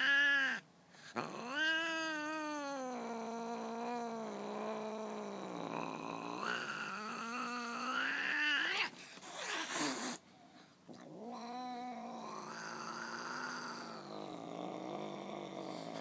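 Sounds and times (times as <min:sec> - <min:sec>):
cat growling yowl: 0:00.0 - 0:10.2, 0:10.9 - 0:16.0
cat hissing: 0:06.2 - 0:10.2.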